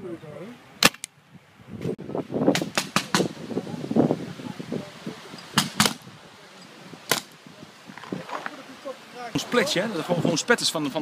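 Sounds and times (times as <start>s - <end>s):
paintball markers firing: 5.6s - 6.0s.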